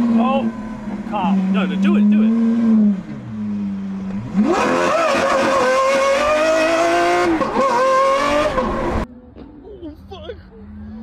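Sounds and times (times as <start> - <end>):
car engine revving hard: 1.2 - 9.0.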